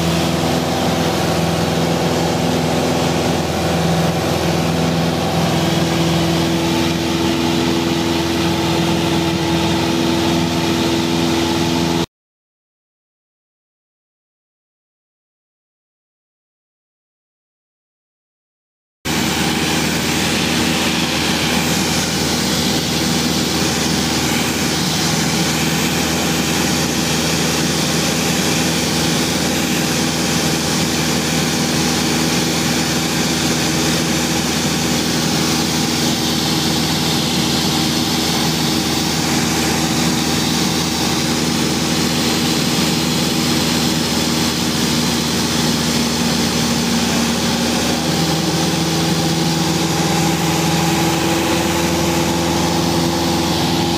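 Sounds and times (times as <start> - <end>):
propeller aircraft engine droning: 0.0 - 12.1, 19.1 - 53.9
air rushing over airframe: 19.1 - 53.9.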